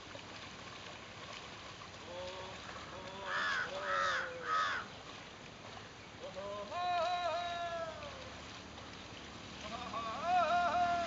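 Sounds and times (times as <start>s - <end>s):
crow cawing: 3.3s - 4.9s.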